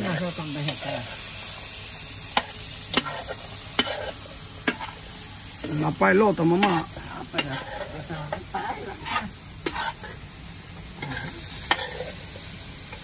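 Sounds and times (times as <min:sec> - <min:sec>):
food sizzling: 0:00.0 - 0:13.0
metal spoon scraping a pot: 0:07.4 - 0:08.0, 0:08.9 - 0:10.2, 0:11.0 - 0:12.2.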